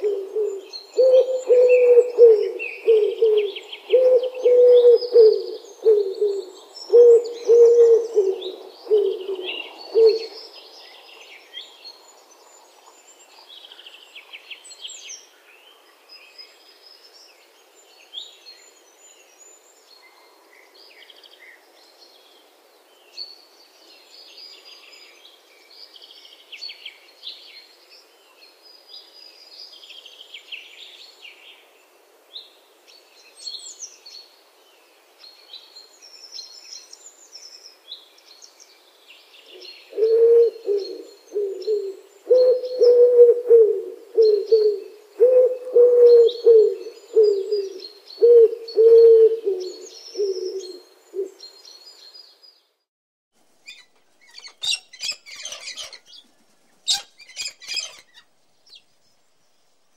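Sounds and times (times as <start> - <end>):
pigeons cooing: 0.0 - 10.4, 39.9 - 51.4
small birds chirping: 53.5 - 59.9.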